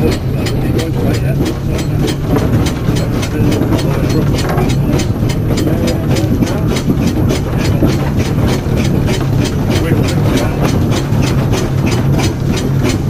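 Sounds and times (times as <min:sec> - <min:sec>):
low rumble: 0:00.0 - 0:13.0
steam roller exhaust chuffing: 0:00.0 - 0:13.0.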